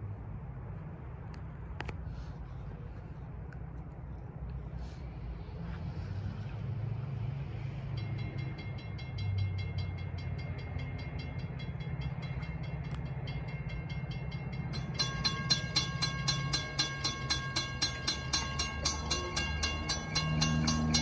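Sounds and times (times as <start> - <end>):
low rumble of train: 0.0 - 21.0
railroad crossing bells ringing: 5.6 - 21.0.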